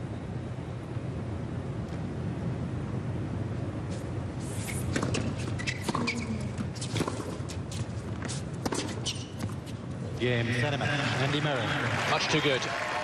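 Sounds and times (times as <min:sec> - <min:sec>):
crowd clapping: 0:10.7 - 0:13.0.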